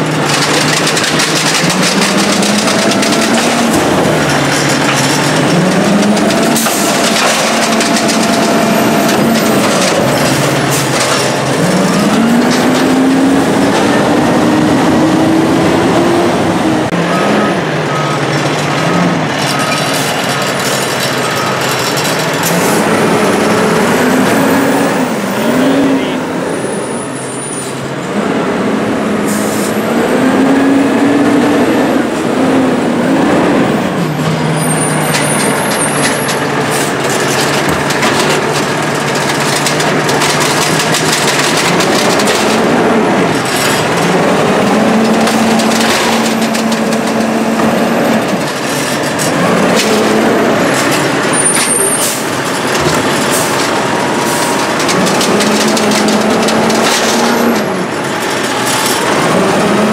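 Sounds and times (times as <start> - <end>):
arm and cart knocking: 0.0 - 14.4, 34.1 - 59.9
diesel engine revving: 0.0 - 59.9.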